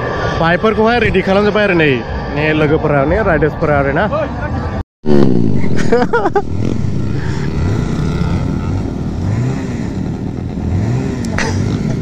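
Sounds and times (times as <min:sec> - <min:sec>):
motorcycles riding past: 0:05.1 - 0:12.0.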